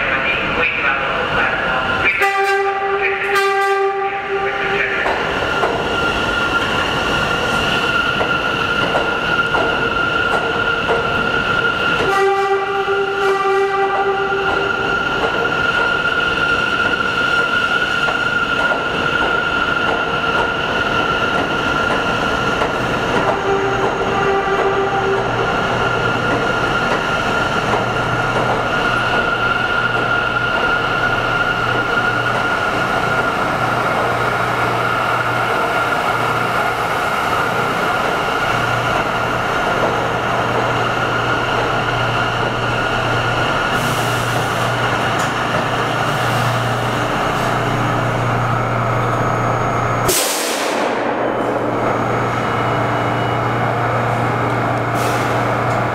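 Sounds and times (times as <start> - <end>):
subway train whine and wheel noise: 0.0 - 55.9
train horn: 2.1 - 4.5, 12.0 - 14.5, 23.3 - 25.4.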